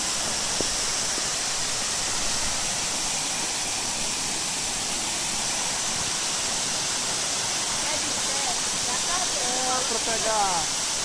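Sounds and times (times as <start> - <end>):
waterfall rushing hiss: 0.0 - 11.0.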